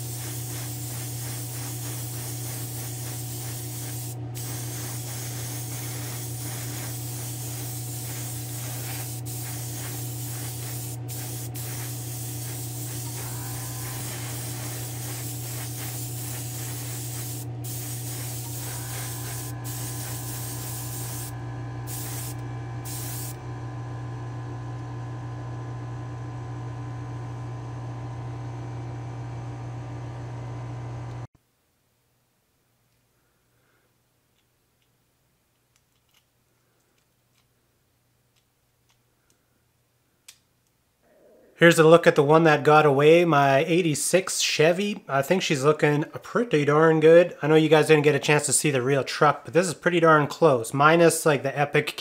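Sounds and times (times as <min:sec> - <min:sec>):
airbrush spraying hiss: 0:00.0 - 0:23.4
steady low hum: 0:00.0 - 0:31.2.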